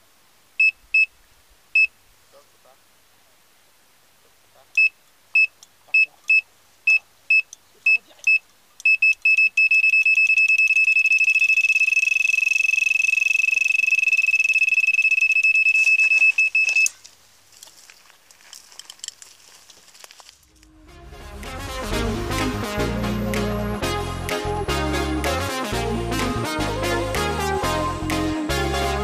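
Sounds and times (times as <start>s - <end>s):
electronic bite alarm beeping: 4.8s - 16.9s.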